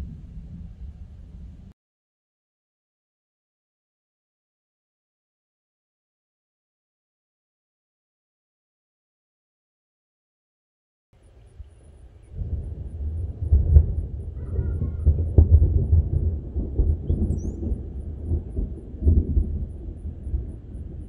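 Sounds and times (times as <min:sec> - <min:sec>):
thunder rumbling: 0:00.0 - 0:01.8, 0:11.8 - 0:21.0.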